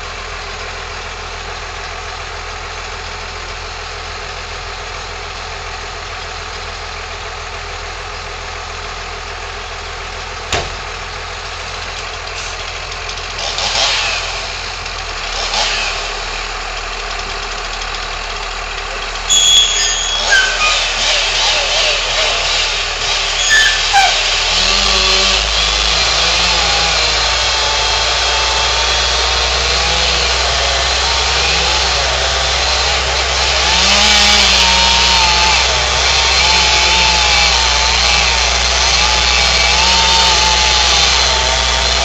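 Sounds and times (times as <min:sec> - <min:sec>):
chainsaw cutting wood: 0:12.4 - 0:17.4, 0:19.3 - 0:42.0.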